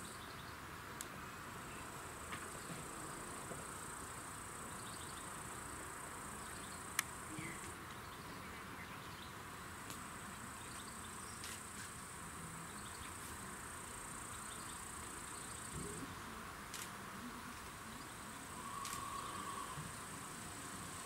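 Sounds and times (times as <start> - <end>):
insects trilling: 17.5 - 21.0.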